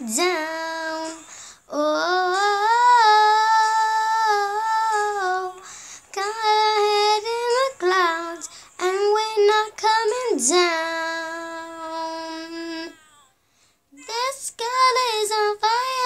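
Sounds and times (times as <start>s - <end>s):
girl singing: 0.0s - 13.3s, 13.9s - 16.0s
short breaths: 1.2s - 1.7s, 5.6s - 6.1s, 13.4s - 13.9s.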